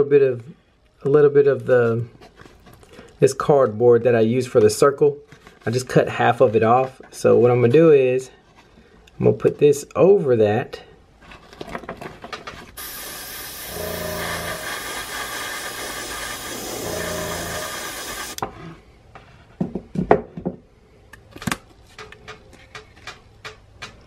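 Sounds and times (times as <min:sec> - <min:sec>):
airbrush spraying paint: 0:12.8 - 0:18.4.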